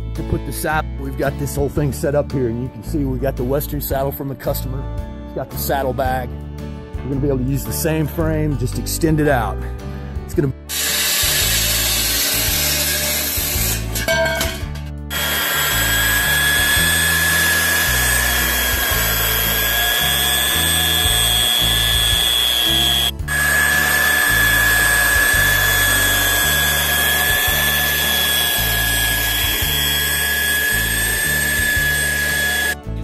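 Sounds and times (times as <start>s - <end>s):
background music with bass: 0.0s - 33.0s
high-pitched whine: 15.1s - 32.8s.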